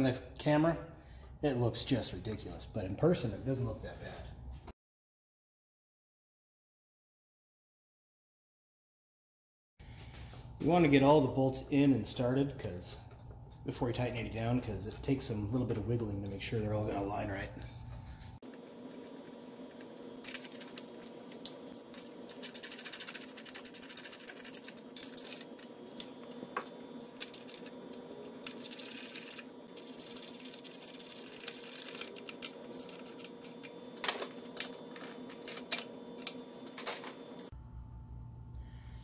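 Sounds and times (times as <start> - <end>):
steady hum: 9.9 - 39.0.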